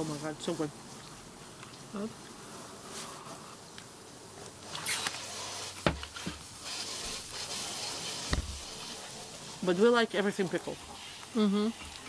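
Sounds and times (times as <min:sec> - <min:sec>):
people chewing: 0:11.0 - 0:12.0.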